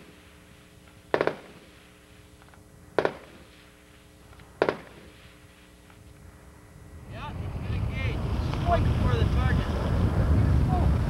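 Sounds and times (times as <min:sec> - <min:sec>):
distant tank gunfire with echo: 0:01.1 - 0:01.7, 0:02.9 - 0:03.6, 0:04.6 - 0:05.2.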